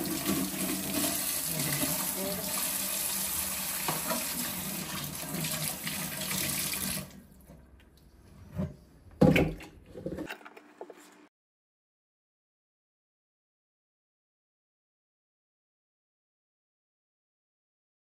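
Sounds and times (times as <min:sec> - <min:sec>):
tap running into metal sink: 0:03.8 - 0:04.4.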